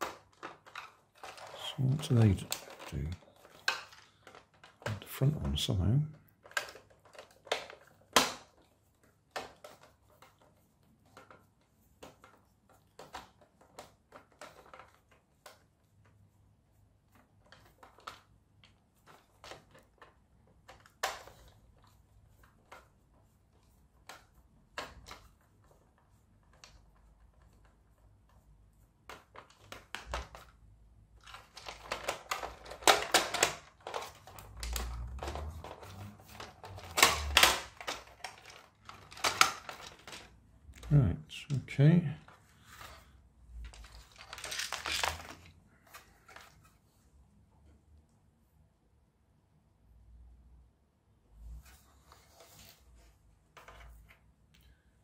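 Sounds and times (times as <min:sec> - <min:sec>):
plastic toy car parts clicking: 0:00.0 - 0:08.7, 0:12.0 - 0:15.6, 0:17.4 - 0:21.9, 0:31.2 - 0:40.9, 0:43.6 - 0:46.6.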